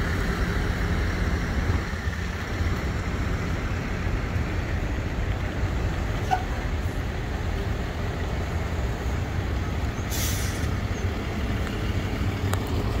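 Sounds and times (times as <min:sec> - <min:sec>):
truck engine idling: 0:00.0 - 0:13.0
air brake hiss: 0:10.1 - 0:10.8.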